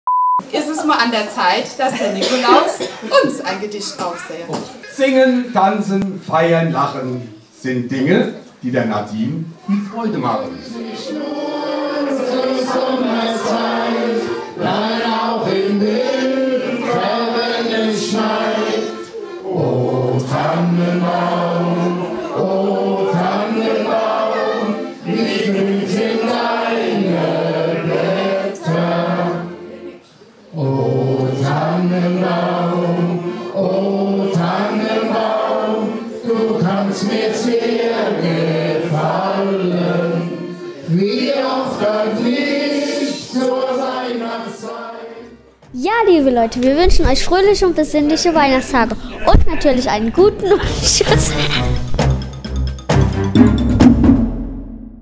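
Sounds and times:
group of voices singing: 10.2 - 45.6, 50.3 - 52.2.

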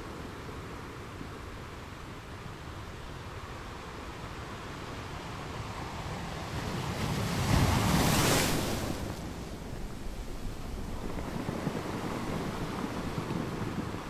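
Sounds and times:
sea waves crashing on shore: 3.0 - 14.0.

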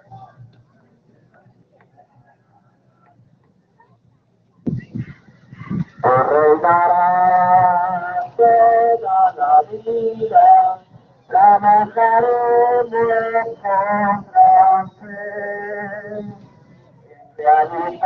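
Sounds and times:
voices singing religious song: 4.8 - 18.0.

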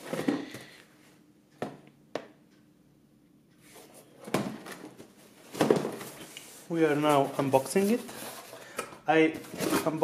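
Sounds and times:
cardboard rustling: 3.7 - 8.7, 9.3 - 10.0.

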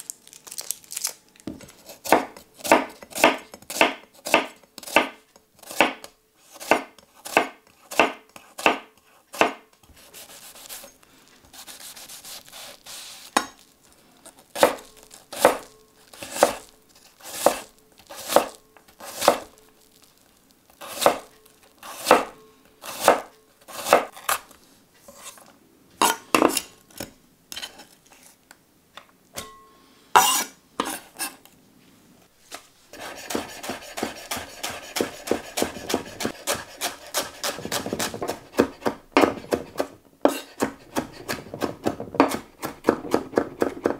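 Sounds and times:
knife chopping on wooden board: 1.5 - 10.3, 14.6 - 16.7, 17.3 - 19.5, 20.8 - 24.3, 33.0 - 43.9.

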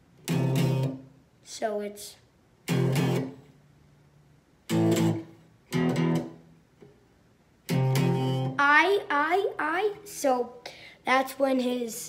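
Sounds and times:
clean electric guitar chords: 4.7 - 6.4, 7.7 - 8.6.

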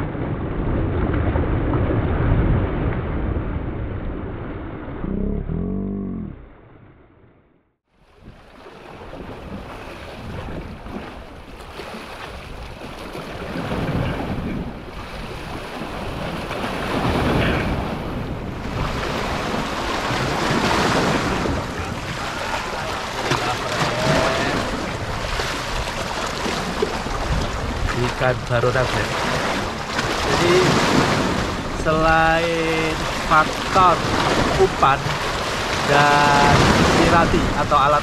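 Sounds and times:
waves breaking on rocks: 8.1 - 38.0
wind on microphone: 8.2 - 38.0.

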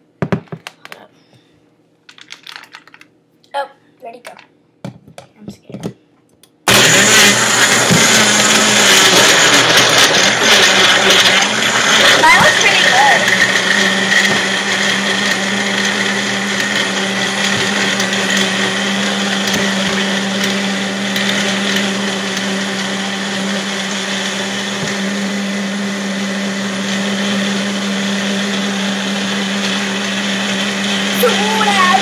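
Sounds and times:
blender running: 6.7 - 32.0.

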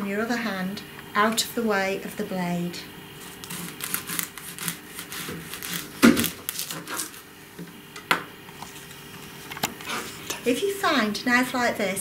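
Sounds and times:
onion skin crackling: 3.2 - 7.2.

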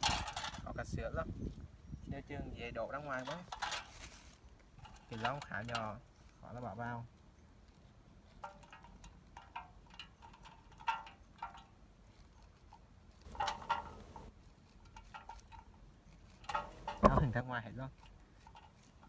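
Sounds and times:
kernels dropping into metal can: 0.0 - 0.6, 13.3 - 14.2
knife cutting corn kernels: 12.0 - 19.0.

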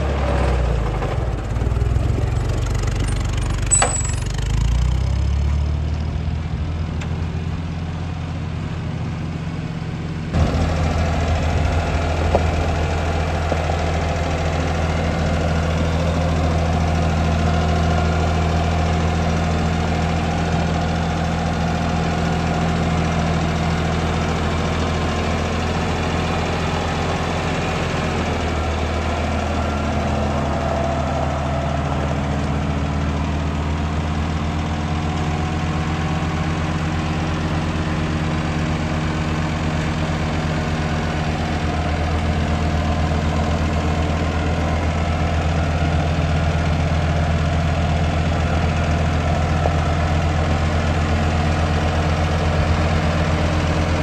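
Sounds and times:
tractor engine running: 0.0 - 54.0.

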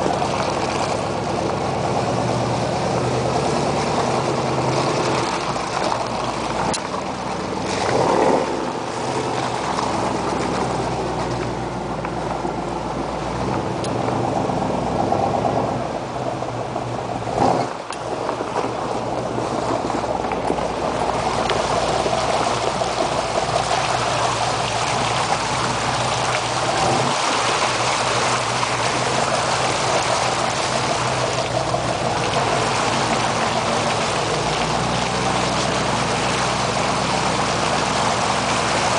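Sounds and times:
truck engine running: 0.0 - 38.9
tyres splashing through muddy water: 0.0 - 38.9.

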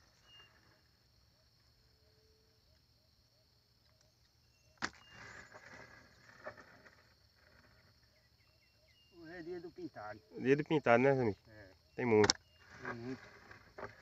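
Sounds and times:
high insect drone: 0.0 - 14.0.

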